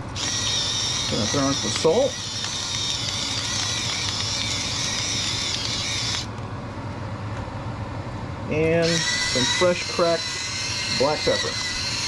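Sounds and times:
electric salt grinder whirring: 0:00.2 - 0:06.3, 0:08.8 - 0:12.0.

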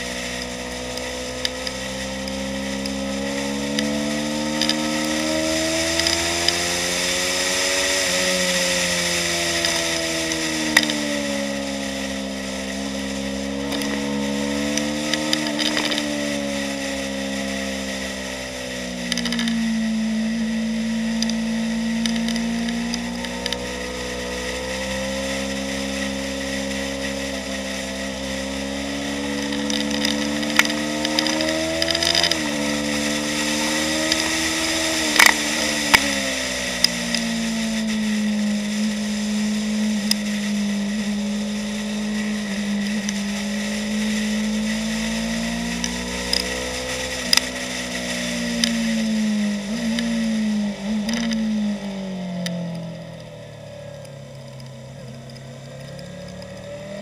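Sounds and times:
motorcycle engine revving: 0:00.0 - 0:57.0
sharp ticks: 0:29.4 - 0:32.6.

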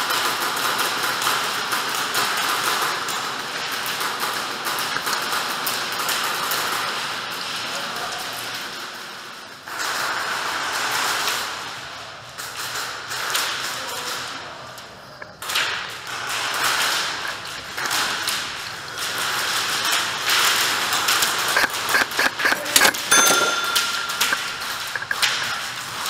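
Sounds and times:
steady high tone: 0:22.8 - 0:24.8.

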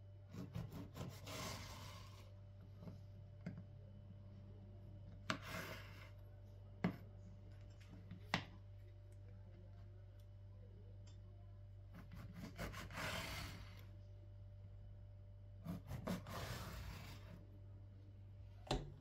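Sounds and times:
knife sawing through bread: 0:00.3 - 0:02.2, 0:05.3 - 0:06.1, 0:11.9 - 0:13.8, 0:15.6 - 0:17.4.

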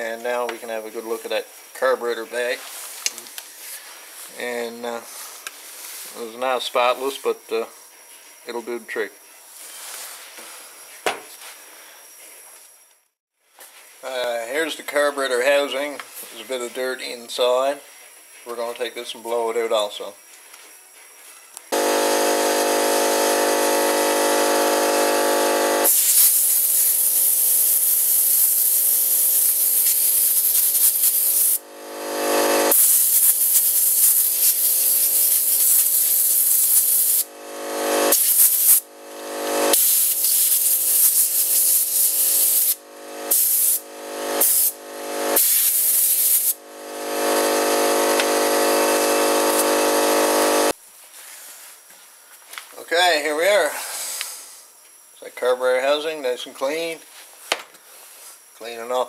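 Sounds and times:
air blow gun hissing: 0:21.8 - 0:50.7.

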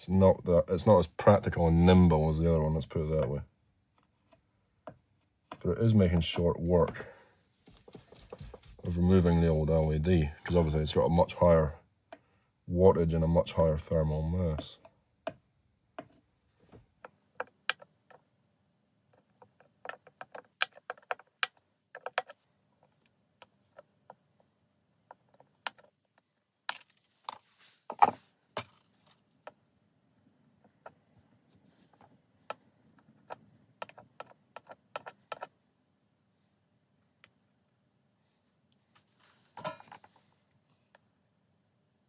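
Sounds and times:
small metal tools clicking and tapping: 0:39.6 - 0:40.2.

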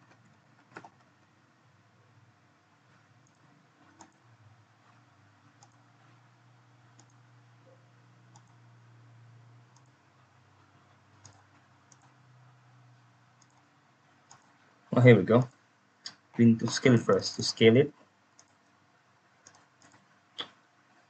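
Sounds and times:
computer mouse clicks: 0:00.0 - 0:01.2, 0:03.2 - 0:06.2, 0:06.8 - 0:10.0, 0:10.9 - 0:12.7, 0:13.4 - 0:14.6, 0:18.3 - 0:18.8, 0:19.4 - 0:20.6
faint low hum: 0:00.0 - 0:21.0.

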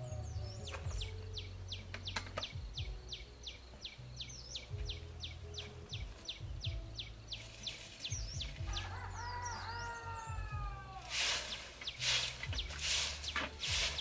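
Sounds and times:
bird calling: 0:00.0 - 0:14.0
sharp clicks: 0:01.8 - 0:02.6.

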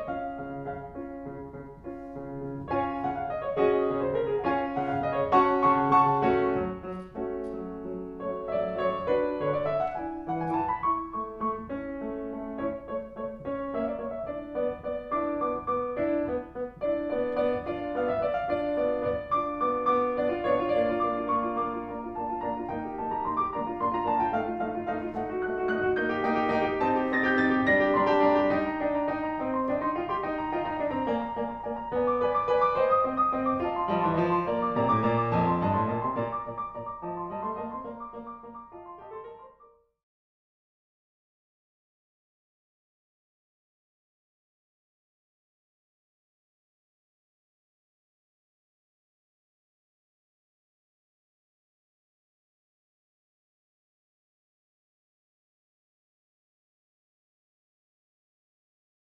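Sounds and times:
piano music: 0:00.0 - 0:39.9.

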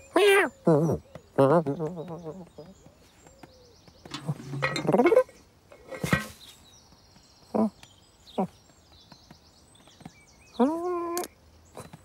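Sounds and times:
birds chirping: 0:00.0 - 0:12.0
metallic clank: 0:04.1 - 0:06.4.

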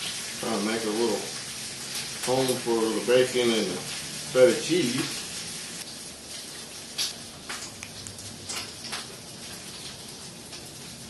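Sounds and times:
bacon sizzling in a pan: 0:00.0 - 0:11.0
sharp crackles and pops: 0:05.8 - 0:11.0.

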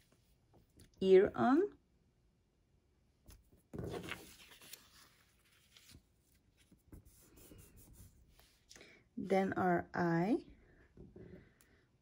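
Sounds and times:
paper rubbing and rustling: 0:03.4 - 0:08.6.

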